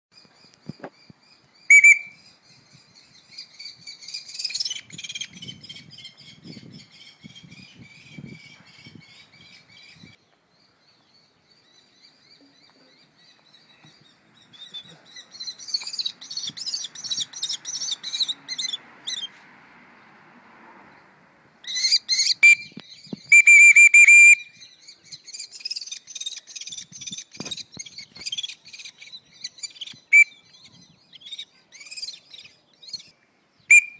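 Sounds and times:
kestrels calling: 0.7s - 12.4s, 13.0s - 19.4s, 21.6s - 33.9s
shrill whistle: 1.7s - 2.2s, 22.4s - 24.6s, 30.1s - 30.4s.

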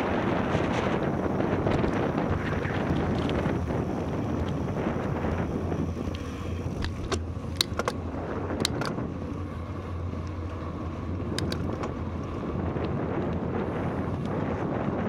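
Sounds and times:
bicycle tyre rumble: 0.0s - 15.0s
bike clicks and rattles: 0.0s - 15.0s.

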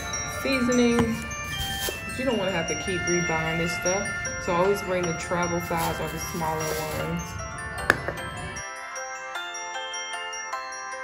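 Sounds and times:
bell-like melody: 0.0s - 11.0s.

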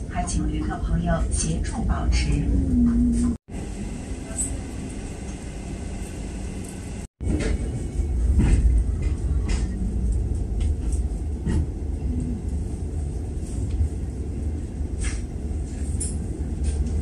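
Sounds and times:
train rumbling on rails: 0.0s - 17.0s.

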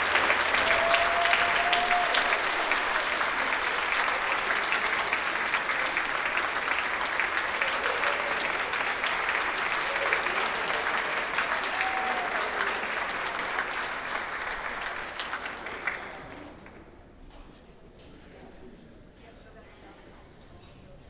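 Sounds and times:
audience applauding: 0.0s - 16.8s.

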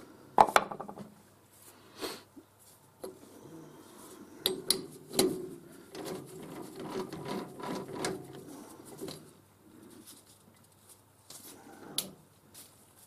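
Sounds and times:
metal clicks and knocks: 4.5s - 8.4s
lathe chuck rattling and scraping: 4.6s - 9.3s.

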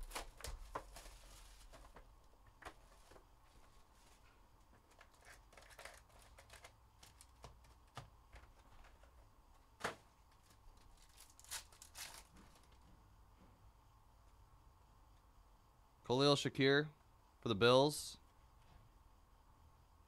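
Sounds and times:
foil wrapper crinkling and tearing: 0.0s - 2.0s, 4.9s - 7.8s, 10.4s - 12.8s.

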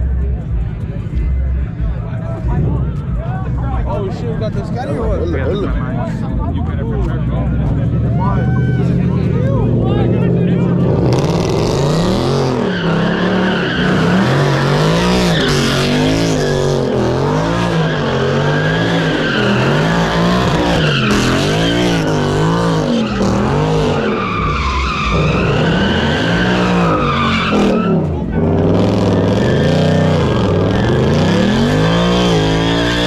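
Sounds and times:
car engine revving: 0.0s - 33.0s
tyres screeching on pavement: 10.5s - 33.0s.

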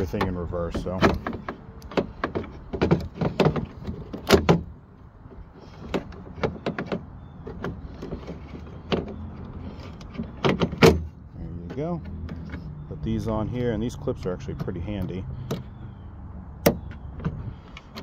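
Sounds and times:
tailgate latch clicks and rattles: 0.0s - 12.7s, 16.6s - 18.0s.

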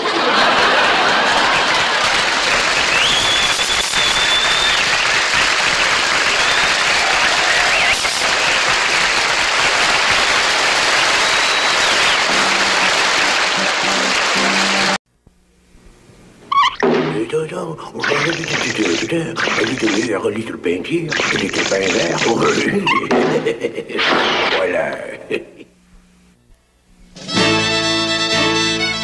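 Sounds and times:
audience applauding: 0.0s - 15.0s
band playing: 11.8s - 15.0s, 27.2s - 29.0s.

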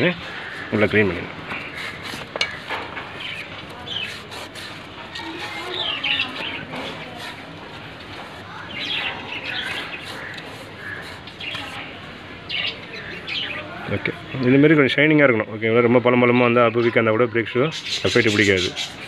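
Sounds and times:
cloth scrubbing metal drum: 0.0s - 12.4s
birds chirping: 0.0s - 19.0s.

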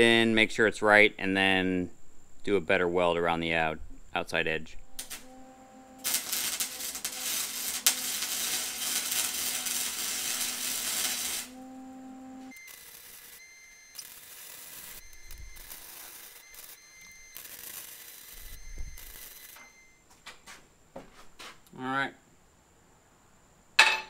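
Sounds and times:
low hum: 3.7s - 12.5s
welding arc crackling: 4.8s - 19.6s.

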